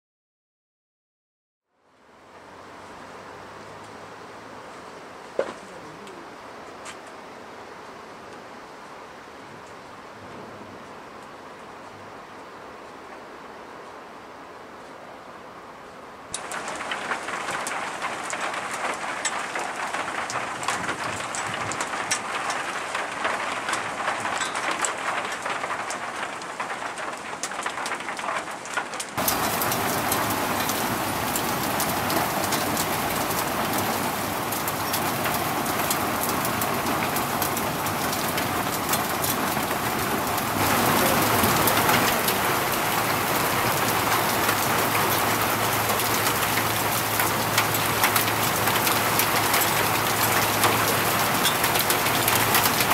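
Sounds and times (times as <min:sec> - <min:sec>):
rain falling: 0:01.8 - 0:52.9
raindrops ticking: 0:16.3 - 0:52.9.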